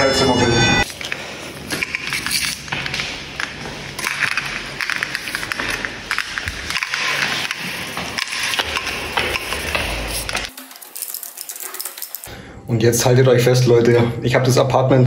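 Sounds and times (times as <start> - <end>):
keys clinking: 0.8 - 12.3
rustling and handling noise: 0.8 - 12.3.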